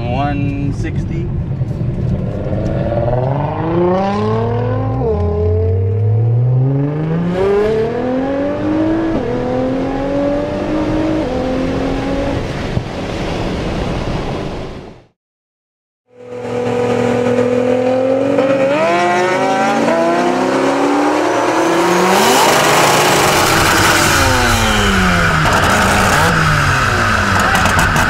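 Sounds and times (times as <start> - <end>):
car engine accelerating hard: 2.1 - 12.5, 16.2 - 28.0.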